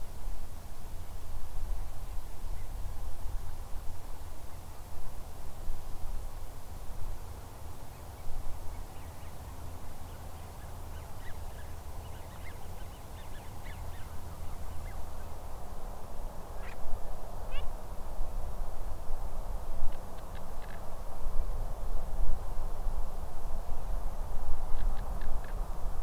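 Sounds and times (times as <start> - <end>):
distant waterfowl calling: 17.5 - 17.7.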